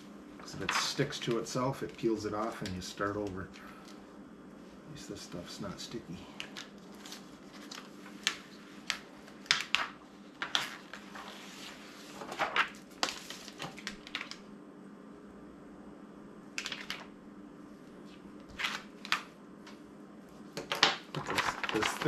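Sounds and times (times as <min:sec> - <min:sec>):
plastic vinyl crinkling: 0:06.4 - 0:14.4, 0:20.6 - 0:22.0.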